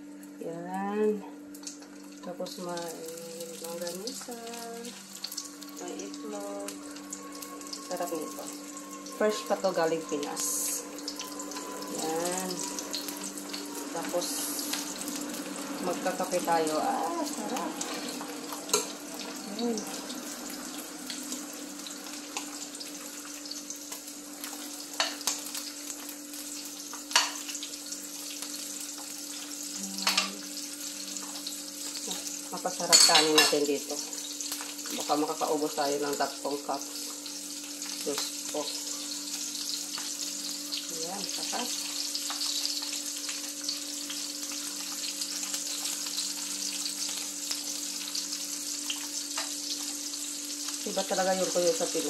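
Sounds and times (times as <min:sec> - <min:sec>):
steady low hum: 0:00.0 - 0:32.9
fish sizzling in hot oil: 0:01.4 - 0:52.0
metal spatula clinking on pan: 0:32.9 - 0:33.6.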